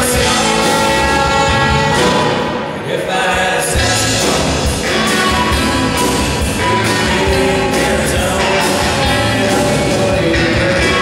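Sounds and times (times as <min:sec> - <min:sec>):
baritone saxophone melody: 0:00.0 - 0:02.5
live rock band playing: 0:00.0 - 0:11.0.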